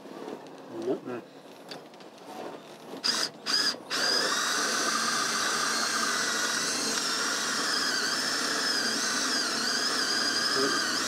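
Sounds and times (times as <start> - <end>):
power drill boring into metal: 3.0 - 11.0.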